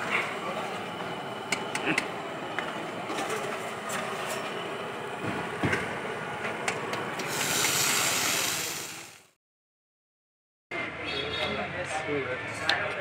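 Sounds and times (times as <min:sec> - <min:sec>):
food stall background noise: 0:00.0 - 0:09.4, 0:10.7 - 0:13.0
loud hiss: 0:07.2 - 0:09.3.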